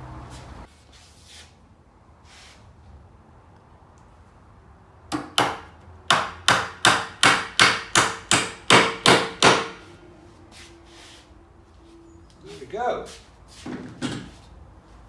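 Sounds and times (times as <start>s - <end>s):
hammer driving nails into wood: 5.1s - 9.8s.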